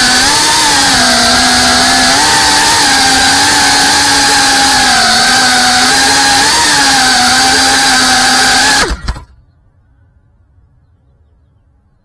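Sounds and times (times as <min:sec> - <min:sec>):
quadcopter motors whining: 0:00.0 - 0:09.3.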